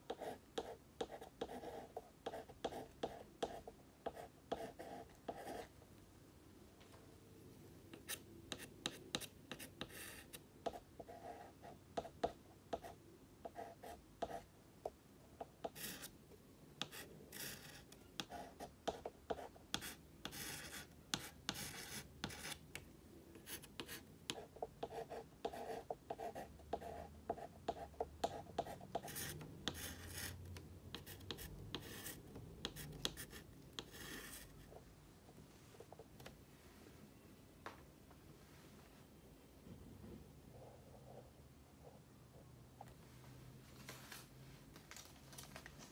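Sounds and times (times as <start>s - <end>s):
chalk writing on a blackboard: 0.1s - 5.7s, 8.0s - 14.5s, 15.6s - 16.1s, 16.8s - 22.6s, 23.4s - 34.6s.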